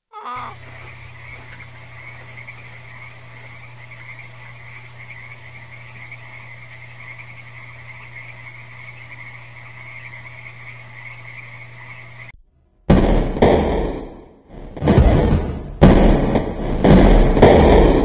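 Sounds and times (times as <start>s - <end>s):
chorus of calling animals: 0.0s - 12.3s
constant low hum: 0.0s - 18.0s.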